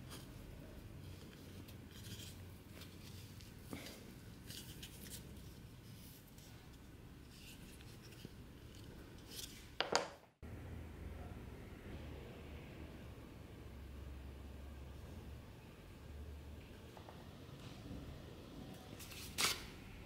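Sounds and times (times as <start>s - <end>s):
leather strap rubbing and scraping: 1.0s - 3.7s.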